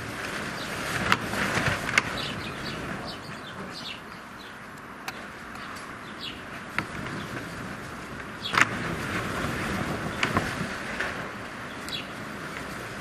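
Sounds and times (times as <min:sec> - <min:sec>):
sparrows chirping: 0:00.4 - 0:00.9, 0:01.9 - 0:07.4, 0:08.3 - 0:08.7, 0:11.6 - 0:12.2.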